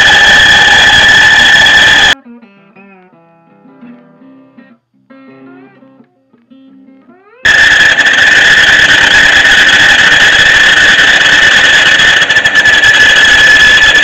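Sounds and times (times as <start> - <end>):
bandsaw squealing: 0.0 - 2.2, 7.5 - 14.0.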